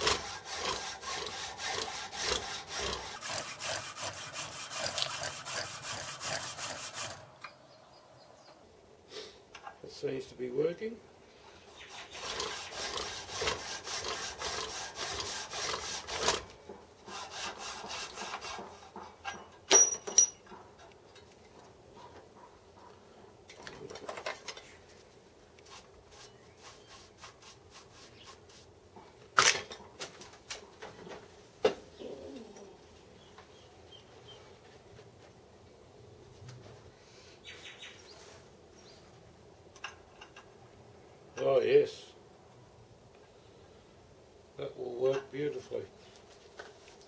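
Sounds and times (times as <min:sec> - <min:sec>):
hacksaw sawing metal: 0:00.0 - 0:07.3, 0:11.8 - 0:19.4
sharp metallic clink: 0:19.7 - 0:20.4.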